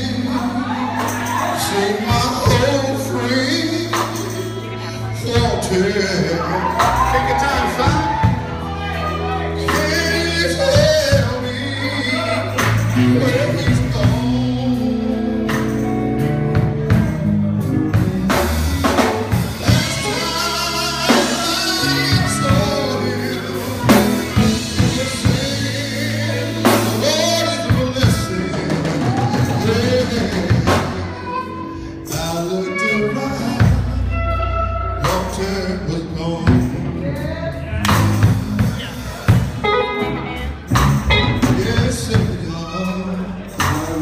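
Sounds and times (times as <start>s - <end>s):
gospel band playing: 0.0s - 44.0s
man singing: 0.0s - 44.0s
drum hits: 40.7s - 42.5s.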